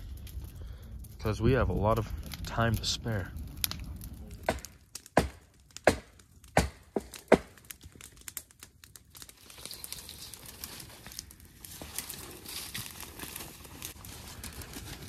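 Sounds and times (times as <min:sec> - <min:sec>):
dry branches rustling: 0:07.0 - 0:15.0.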